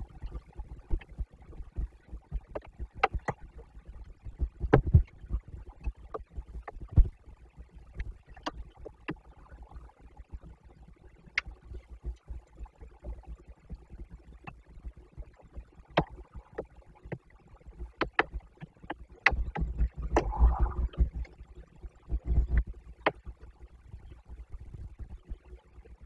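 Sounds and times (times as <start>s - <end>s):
wind gust on microphone: 20.2s - 21.1s.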